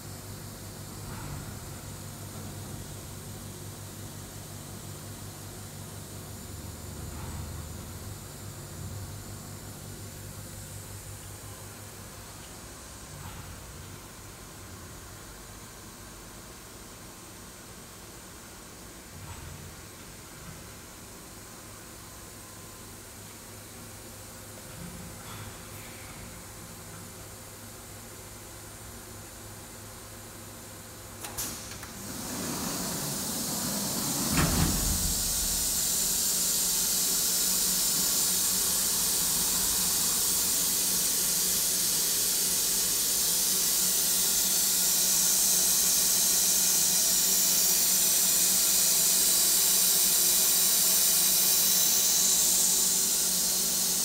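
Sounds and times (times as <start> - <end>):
compressed air hissing: 31.5 - 54.0.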